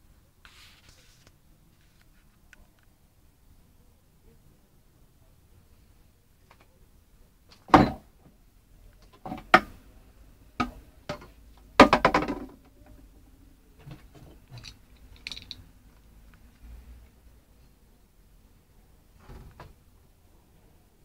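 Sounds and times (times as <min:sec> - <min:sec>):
sharp knocks and cracks: 0:10.6 - 0:12.6
rattling clicks: 0:14.5 - 0:15.6.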